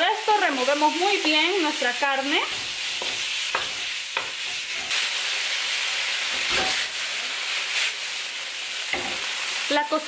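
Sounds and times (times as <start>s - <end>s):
beef sizzling in hot oil: 0.0s - 10.0s
wooden spoon scraping pan: 2.2s - 5.1s.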